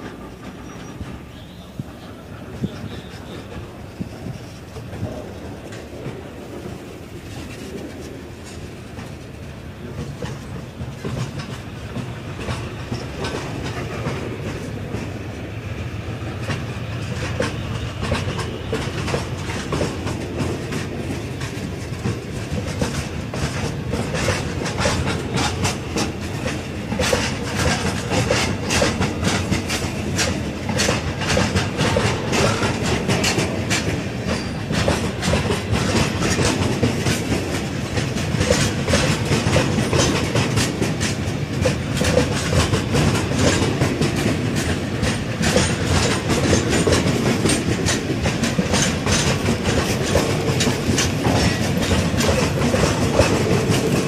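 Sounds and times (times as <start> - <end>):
freight train rolling past: 0.0 - 54.0
wheels clacking over rail joints: 0.0 - 54.0.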